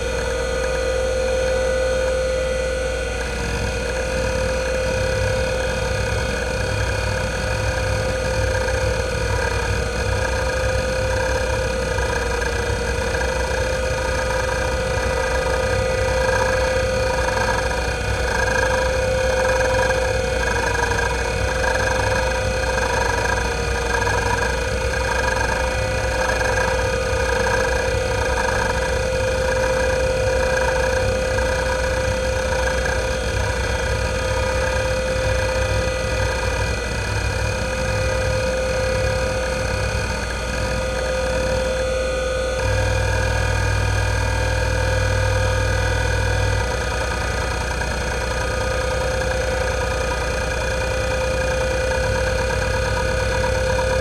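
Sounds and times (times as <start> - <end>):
hard drive platter whine: 0.0 - 54.0
hard drive head-seek clicking: 7.7 - 36.4, 45.5 - 54.0.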